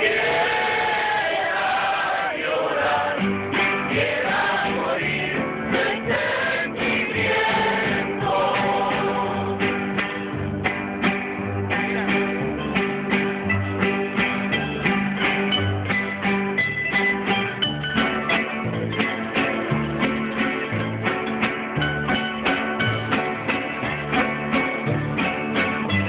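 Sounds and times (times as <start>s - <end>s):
group of voices singing: 0.0s - 10.0s
strummed guitars: 0.0s - 26.0s
plucked bass notes: 2.7s - 26.0s.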